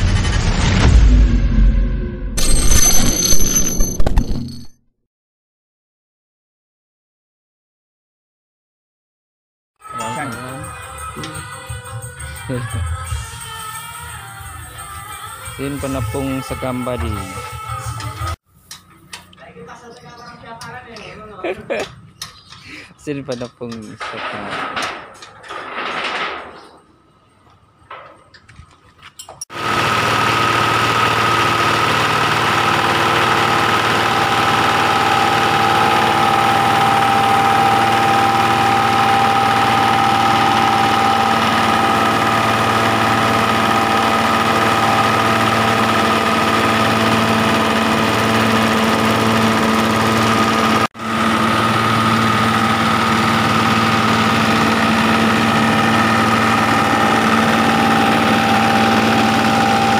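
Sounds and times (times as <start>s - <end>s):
grinding mill engine hum: 29.5s - 59.9s
steady mill whine: 29.5s - 59.9s.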